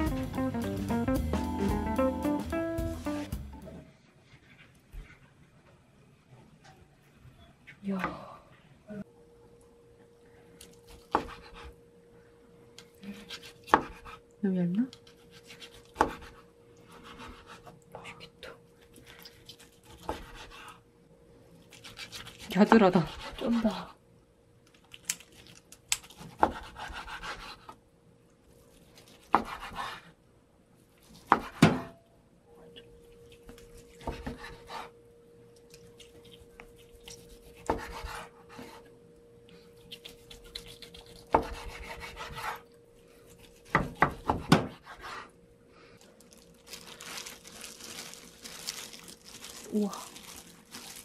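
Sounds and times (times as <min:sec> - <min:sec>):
plastic gloves rustling: 0:28.5 - 0:29.3, 0:45.8 - 0:51.0
knife slicing through meat: 0:39.9 - 0:42.6.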